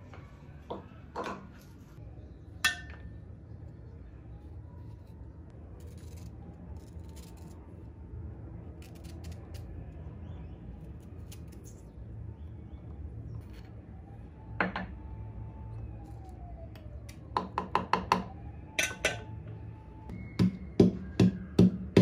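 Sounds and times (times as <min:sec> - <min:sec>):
knife scraping ginger: 0:04.8 - 0:07.8, 0:08.6 - 0:10.0, 0:10.8 - 0:12.0.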